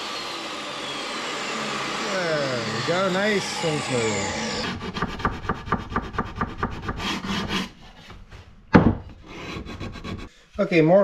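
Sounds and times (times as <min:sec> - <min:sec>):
sanding block rubbing wood: 0:01.8 - 0:07.7, 0:09.2 - 0:10.3
wood knocking on wood: 0:08.7 - 0:09.2.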